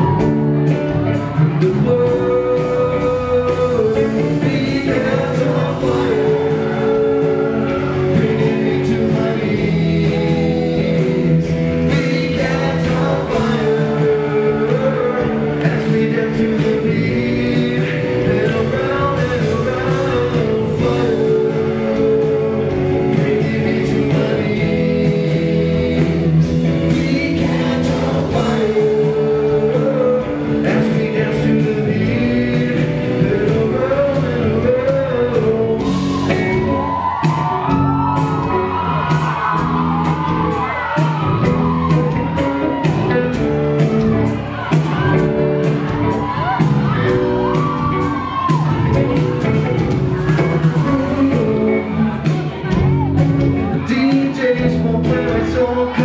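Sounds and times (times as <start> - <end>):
live pop-rock band playing: 0.0 - 56.0
man singing: 0.0 - 56.0.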